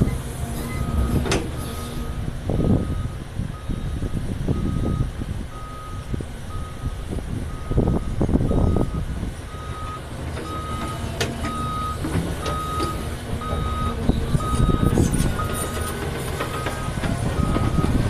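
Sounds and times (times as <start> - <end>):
excavator engine surging: 0.0 - 18.0
backup alarm beeping: 2.6 - 15.8.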